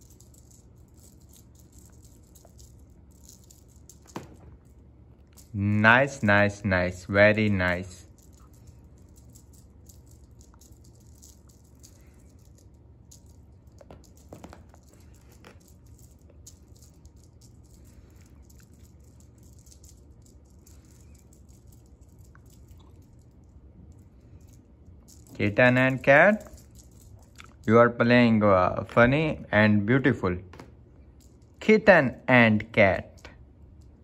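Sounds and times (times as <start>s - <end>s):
cat toy rattling and ticking: 0.0s - 5.6s, 7.7s - 23.6s, 24.4s - 27.7s.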